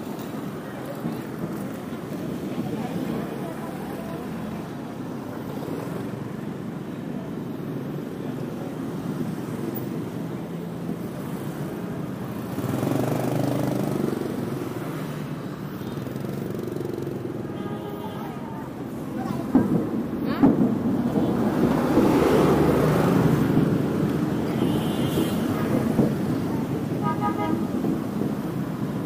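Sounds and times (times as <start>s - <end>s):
motorbikes and scooters traffic: 0.0s - 29.0s
motorbike passing: 11.2s - 15.4s, 18.9s - 29.0s.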